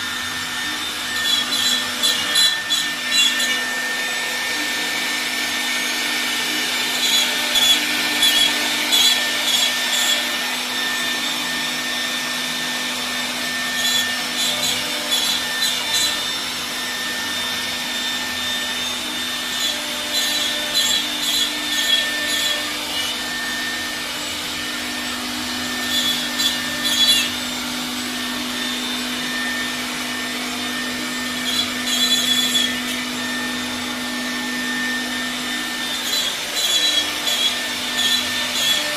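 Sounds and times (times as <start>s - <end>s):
router bit cutting wood: 0.0s - 38.9s
wood router spindle humming: 0.0s - 38.9s.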